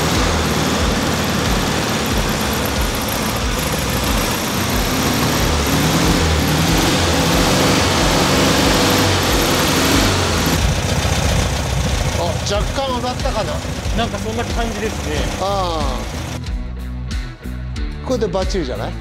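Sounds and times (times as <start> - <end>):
car engine running: 0.0 - 16.5.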